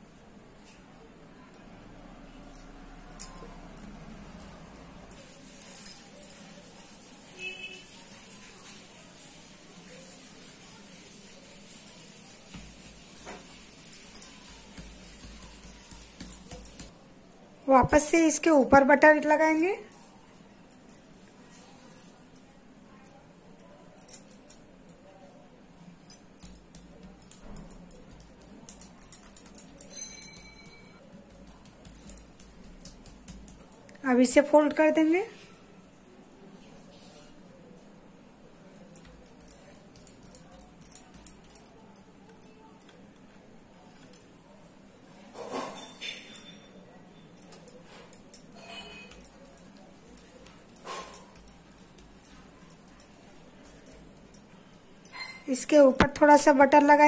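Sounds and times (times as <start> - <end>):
glass bangles clinking: 2.4 - 7.8, 10.0 - 17.0, 22.9 - 25.2, 26.0 - 35.0, 38.6 - 44.6, 45.4 - 57.0
dough pressed on counter: 14.4 - 16.9, 29.4 - 33.7.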